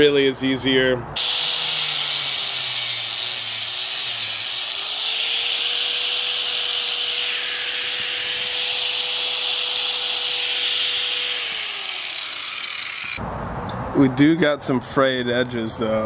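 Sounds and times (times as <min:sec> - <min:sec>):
angle grinder cutting hose: 0:01.2 - 0:13.2.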